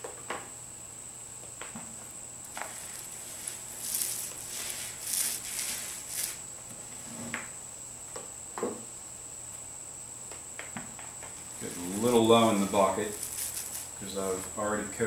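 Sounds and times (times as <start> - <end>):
steady high whine: 0.8 - 15.0
paint roller wet hissing strokes: 2.5 - 7.2, 11.5 - 14.6.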